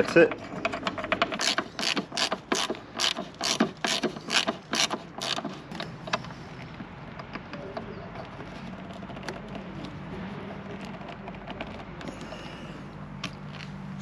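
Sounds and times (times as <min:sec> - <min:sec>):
hand ratchet clicking: 0:00.6 - 0:06.3.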